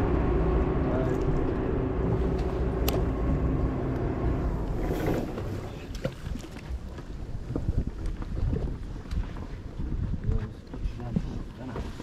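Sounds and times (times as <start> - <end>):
boat engine droning: 0.0 - 8.7.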